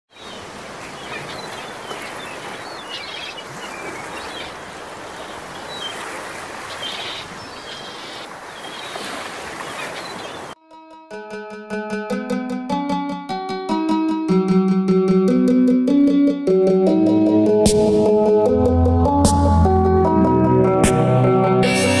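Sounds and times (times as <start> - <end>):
running water rushing: 0.1 - 10.6
small birds chirping: 0.1 - 10.6.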